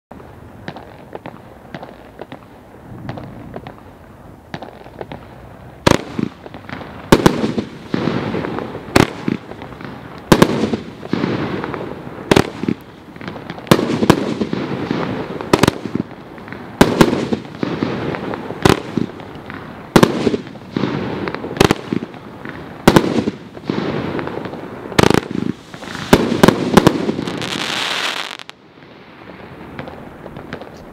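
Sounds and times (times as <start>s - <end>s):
crackling firework stars: 0.1s - 30.9s
firework bursts: 0.6s - 30.9s
hissing firework salvo: 0.7s - 30.9s
firework pops: 24.4s - 28.6s.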